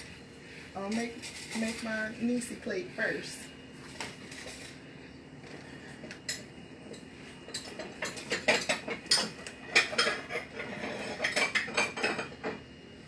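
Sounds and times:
dishes and utensils clinking: 6.1s - 12.6s.

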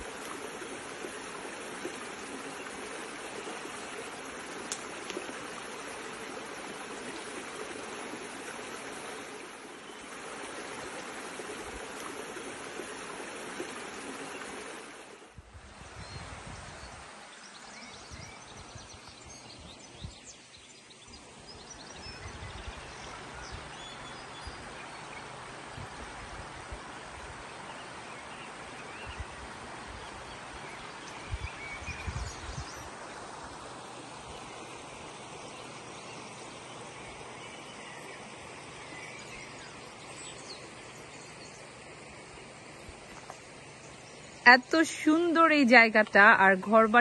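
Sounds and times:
stream rushing over stones: 0.0s - 15.7s, 23.1s - 47.0s.

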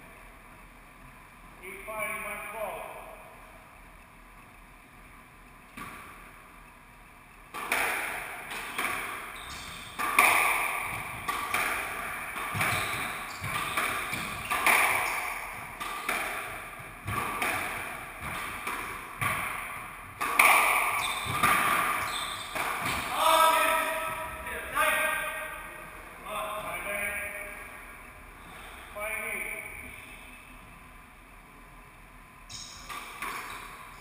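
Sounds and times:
squash ball hits echoing: 7.5s - 24.5s, 32.5s - 34.0s.

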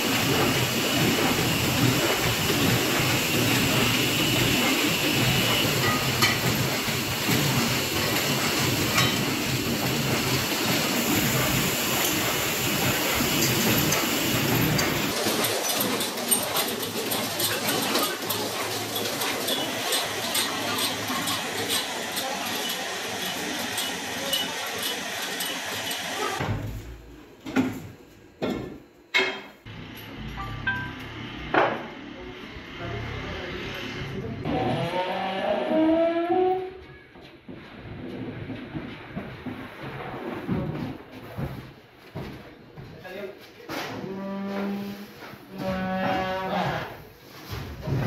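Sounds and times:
factory machinery running: 0.0s - 27.5s, 29.2s - 36.8s.

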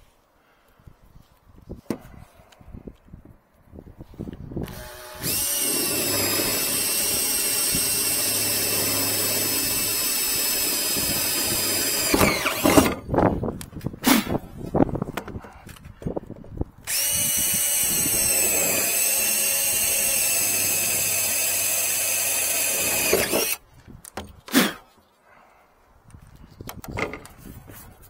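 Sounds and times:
cordless drill boring sheet metal: 4.6s - 13.0s, 16.8s - 23.6s.

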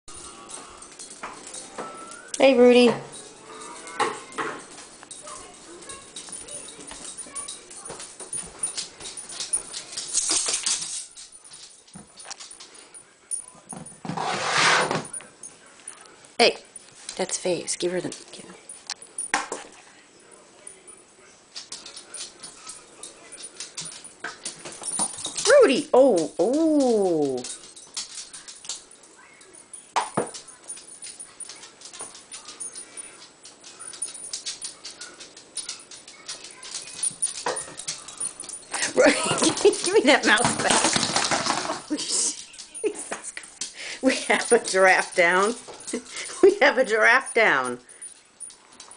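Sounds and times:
animals scrabbling on laminate floor: 27.3s - 46.6s.

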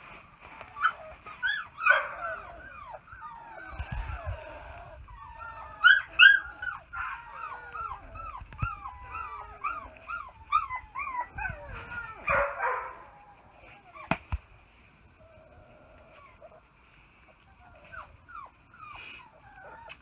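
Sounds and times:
scuffling rustle: 0.0s - 2.5s, 7.7s - 15.1s
puppy whimpering: 0.6s - 12.3s, 17.5s - 20.0s.

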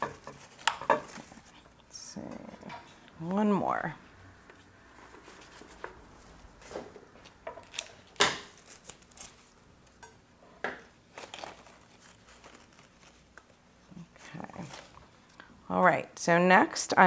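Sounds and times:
flower stems rustling and crinkling: 4.5s - 9.6s, 11.1s - 15.3s.

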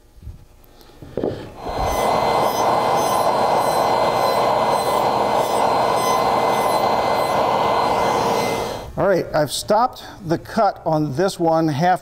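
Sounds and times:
shop vac running: 1.3s - 9.0s
table saw cutting wood: 1.6s - 8.9s.

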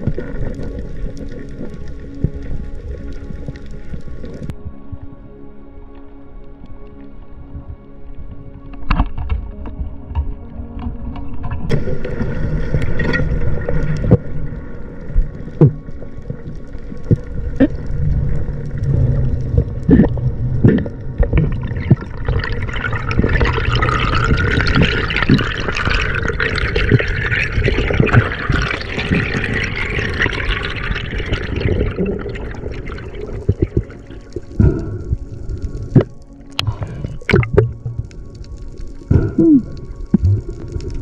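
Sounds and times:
water sloshing and rushing: 8.4s - 41.0s.

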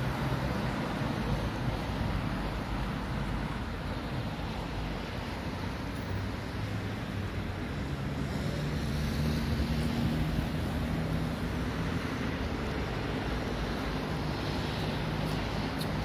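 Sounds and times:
street traffic: 0.0s - 16.0s.

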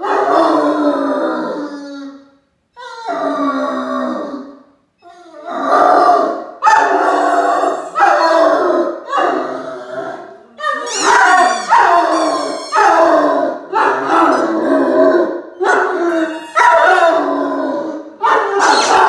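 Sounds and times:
dog howling: 5.1s - 19.0s.

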